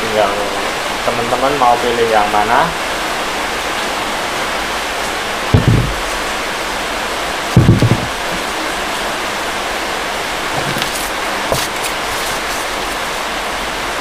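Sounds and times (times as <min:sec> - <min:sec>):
steady hiss: 0:00.0 - 0:14.0
low thump: 0:05.6 - 0:06.1, 0:07.6 - 0:08.4
wheel rims knocking together: 0:05.6 - 0:06.2, 0:07.6 - 0:08.4.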